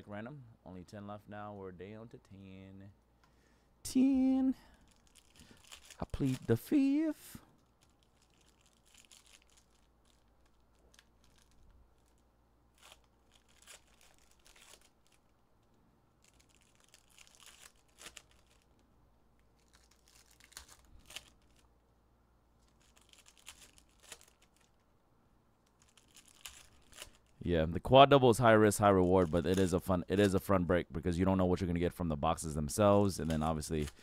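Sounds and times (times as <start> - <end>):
foil wrappers tearing and crinkling: 4.8 - 15.3, 16.2 - 18.8, 19.4 - 21.7, 22.6 - 24.8, 25.7 - 27.4.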